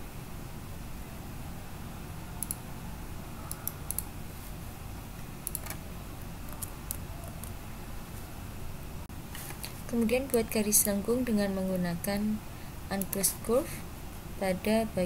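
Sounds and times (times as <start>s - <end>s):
steady low hum: 0.0s - 15.0s
computer mouse clicking: 2.4s - 2.6s, 3.5s - 4.1s, 5.4s - 5.8s, 6.5s - 7.6s, 13.0s - 13.3s.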